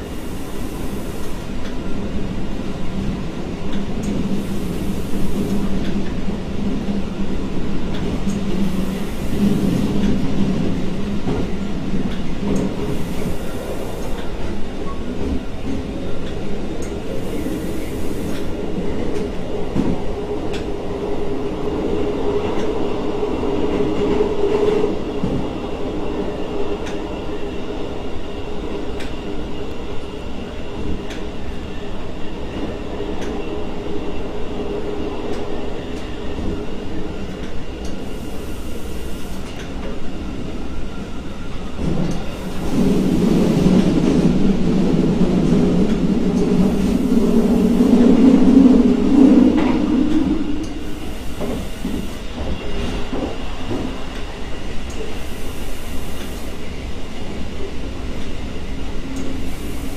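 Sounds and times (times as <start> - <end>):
faint rail clicks: 3.0 - 6.2, 7.8 - 20.8, 26.8 - 27.1, 28.9 - 29.8, 31.0 - 31.3, 32.6 - 33.4, 37.3 - 40.1, 41.8 - 44.5, 49.5 - 55.1.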